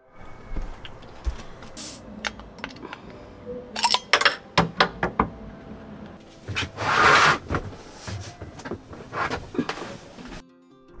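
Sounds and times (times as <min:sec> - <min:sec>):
objects knocking and clattering: 0:02.2 - 0:06.8, 0:07.4 - 0:10.4
rustling: 0:06.1 - 0:10.4.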